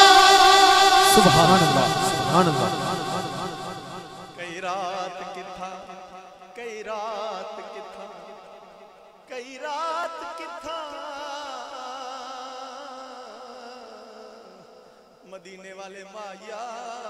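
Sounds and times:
man singing wordless notes: 0:00.0 - 0:04.8.

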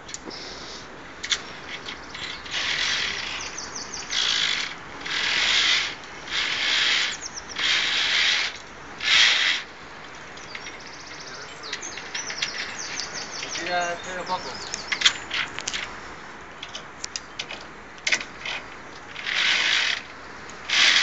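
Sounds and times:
carabiners scraping steel cable: 0:01.2 - 0:09.7, 0:11.8 - 0:13.7, 0:18.0 - 0:21.0.

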